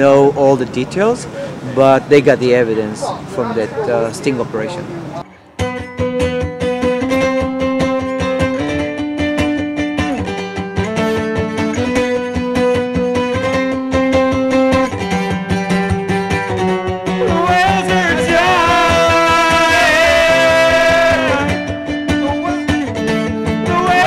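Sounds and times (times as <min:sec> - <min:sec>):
fast picked guitar: 0:05.3 - 0:24.0
wavering held melody line: 0:16.7 - 0:22.9.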